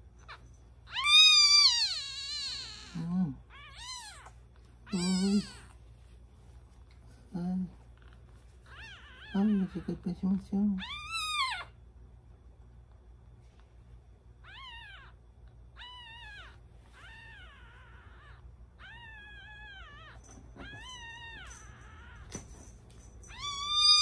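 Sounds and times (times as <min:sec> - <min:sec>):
kitten mewing: 0:00.9 - 0:05.7.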